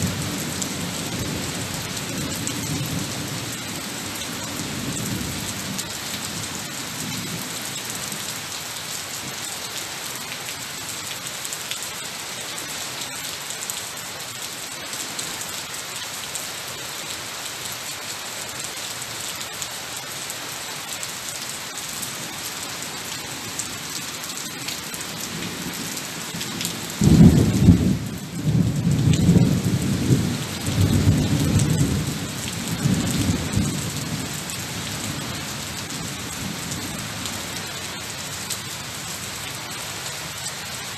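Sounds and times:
rain on tiles and foliage: 0:00.0 - 0:40.9.

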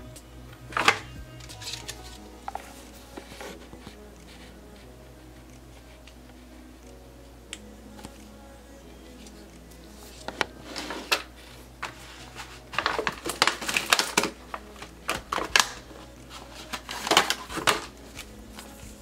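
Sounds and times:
plastic and cardboard crinkling: 0:00.7 - 0:04.9, 0:09.2 - 0:19.0.

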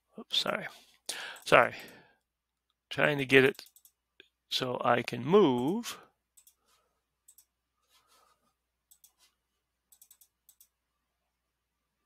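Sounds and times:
computer mouse clicks: 0:03.5 - 0:04.0, 0:06.4 - 0:06.6, 0:07.3 - 0:07.5, 0:08.9 - 0:09.3, 0:09.9 - 0:10.8.

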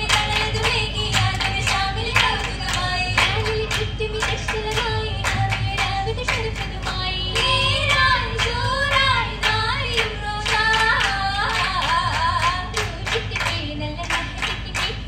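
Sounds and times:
girls singing in chorus: 0:00.0 - 0:15.0
rhythmic hand claps: 0:00.0 - 0:15.0.

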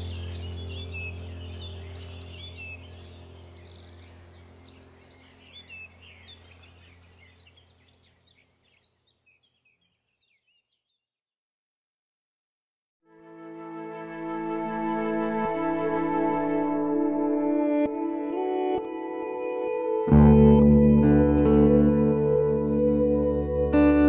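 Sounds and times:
low steady drone: 0:00.0 - 0:07.8, 0:14.1 - 0:24.0
birds chirping and singing: 0:00.0 - 0:11.0.

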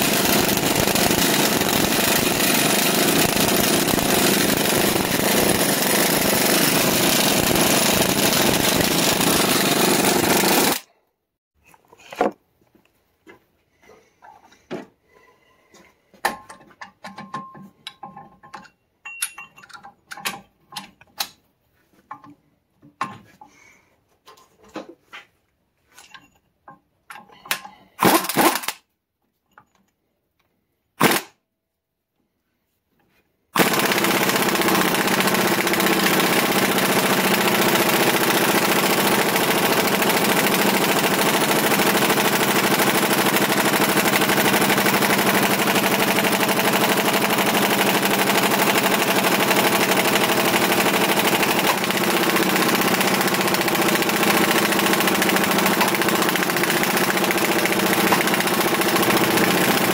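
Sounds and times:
impact wrench hammering: 0:00.0 - 0:10.9, 0:33.6 - 0:59.9.

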